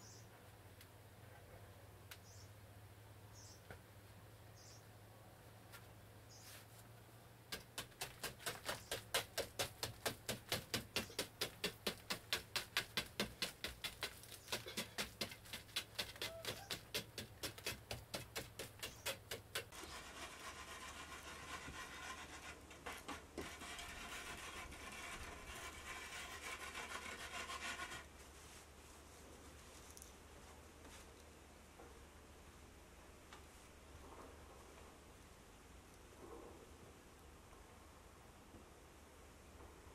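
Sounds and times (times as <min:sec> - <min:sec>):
stick scraping dried mud: 0:07.5 - 0:28.1
hand rubbing mud surface: 0:07.5 - 0:29.8.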